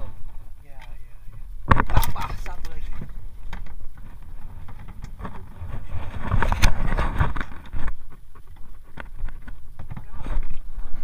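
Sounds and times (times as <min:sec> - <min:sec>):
wind rumbling on microphone: 0:00.0 - 0:11.0.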